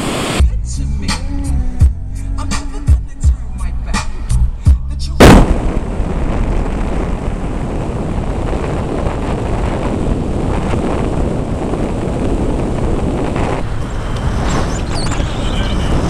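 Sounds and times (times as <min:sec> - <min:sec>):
low road rumble: 0:00.0 - 0:16.0
wind on microphone: 0:02.7 - 0:16.0.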